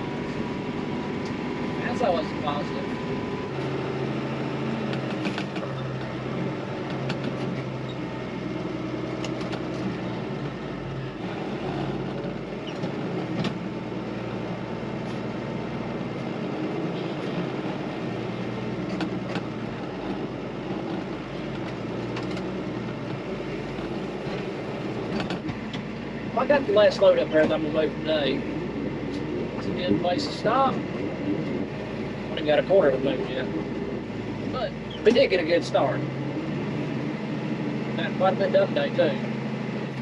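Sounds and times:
tractor diesel engine running: 0:00.0 - 0:40.0
clanks and rattles: 0:04.8 - 0:06.2, 0:06.8 - 0:08.2, 0:09.1 - 0:10.5, 0:11.3 - 0:26.1.

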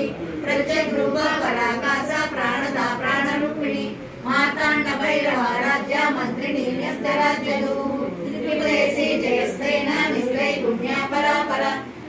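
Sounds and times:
women singing without instruments: 0:00.0 - 0:11.9.

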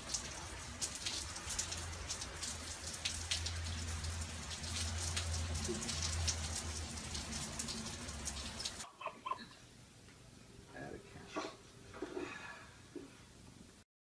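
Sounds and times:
rain on pebbles and paving: 0:00.0 - 0:08.9.

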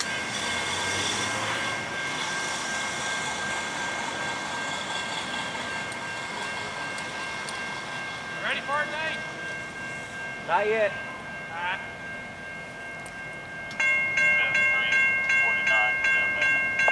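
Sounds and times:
freight train rumbling: 0:00.0 - 0:16.9.

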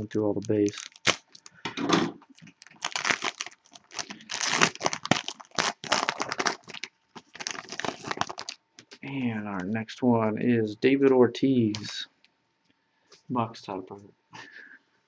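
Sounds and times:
wrapper crinkling and tearing: 0:00.0 - 0:01.6, 0:02.3 - 0:09.0.

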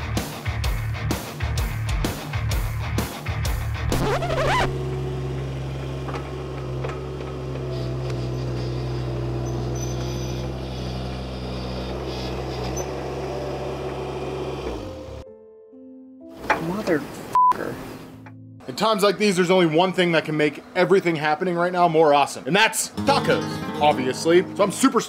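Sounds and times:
rock music: 0:00.0 - 0:04.7, 0:23.0 - 0:25.0
track loader engine idling: 0:04.7 - 0:15.2.

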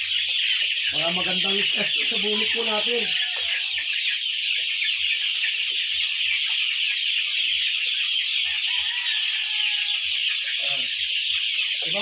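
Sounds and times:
cockerels clucking: 0:00.0 - 0:12.0.

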